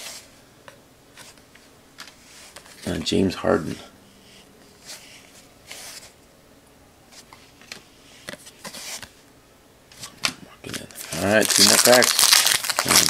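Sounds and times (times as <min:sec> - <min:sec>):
cards sliding over cards: 0:01.1 - 0:03.0, 0:04.2 - 0:06.2, 0:07.1 - 0:09.2.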